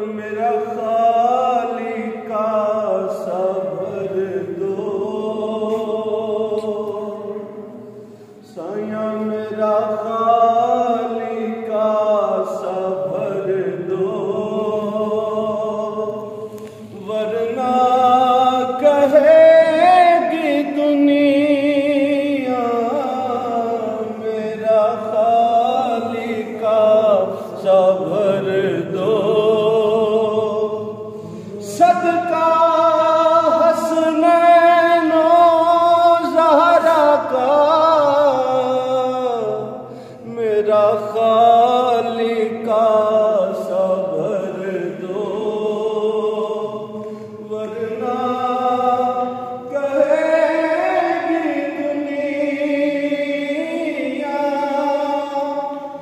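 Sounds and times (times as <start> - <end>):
man singing unaccompanied: 0.0 - 56.0
singer breathing in: 7.8 - 8.4, 16.3 - 16.9, 31.1 - 31.6, 39.8 - 40.2, 47.0 - 47.4.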